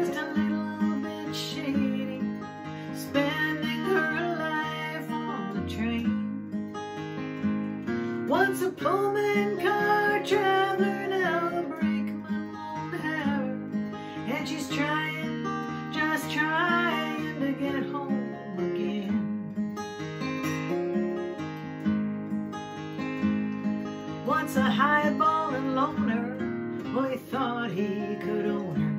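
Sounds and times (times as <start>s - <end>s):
woman singing: 0.0s - 6.8s, 8.1s - 19.5s, 24.1s - 28.9s
acoustic guitar strummed: 0.0s - 28.9s.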